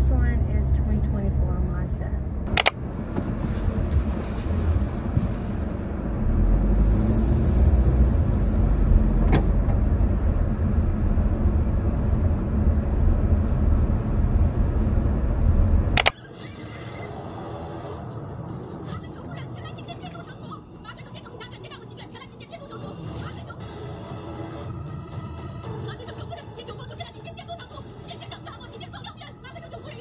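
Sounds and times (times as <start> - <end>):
road and engine rumble in car: 0.0 - 16.0
sharp click: 2.5 - 2.8.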